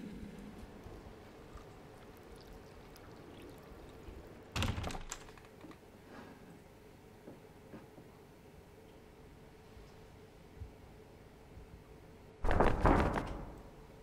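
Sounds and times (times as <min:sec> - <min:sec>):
water pouring into a mug: 0:00.8 - 0:04.5.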